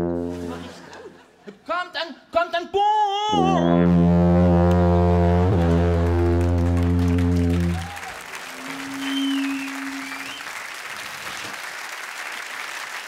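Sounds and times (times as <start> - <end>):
low sousaphone note: 0.0 - 0.7, 3.3 - 10.3
wavering whistle: 3.4 - 4.0, 7.0 - 10.5
audience applause: 6.4 - 13.0.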